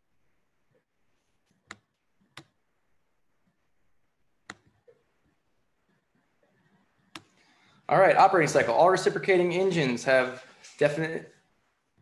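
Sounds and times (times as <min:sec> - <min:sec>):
computer mouse clicks: 0:01.4 - 0:02.6, 0:04.4 - 0:07.4.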